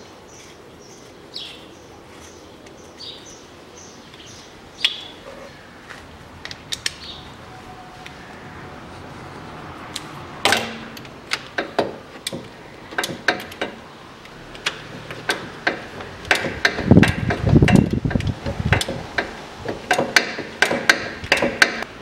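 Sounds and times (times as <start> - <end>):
ratchet wrench clicking: 14.5 - 21.9.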